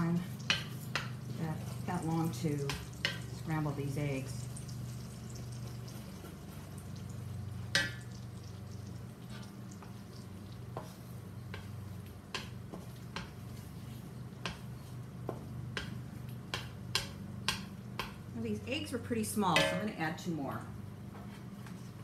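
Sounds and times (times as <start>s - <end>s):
spatula scraping and tapping wok: 0.0s - 3.8s, 9.2s - 18.3s, 19.5s - 20.0s
eggs frying in wok: 0.0s - 18.6s.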